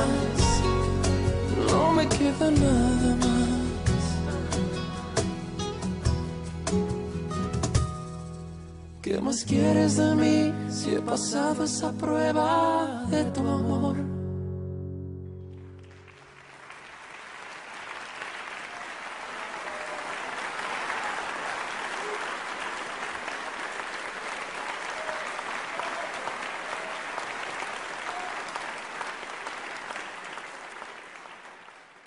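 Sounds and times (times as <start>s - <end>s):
audience clapping: 15.5s - 32.0s.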